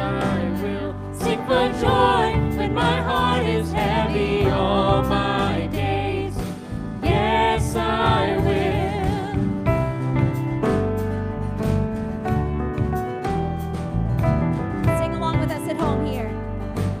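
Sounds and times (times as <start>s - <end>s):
man and woman singing: 0.0s - 9.6s
sustained instrumental backing: 0.0s - 17.0s.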